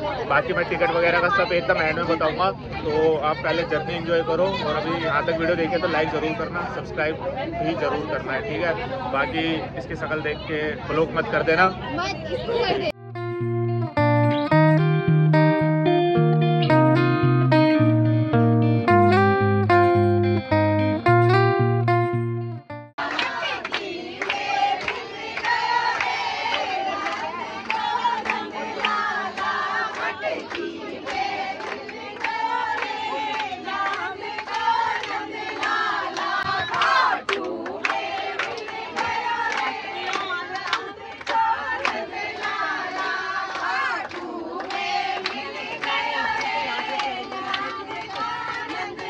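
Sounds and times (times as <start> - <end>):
guitar music: 12.9 - 22.9
women singing devotional song: 23.0 - 49.0
hand claps: 23.1 - 49.0.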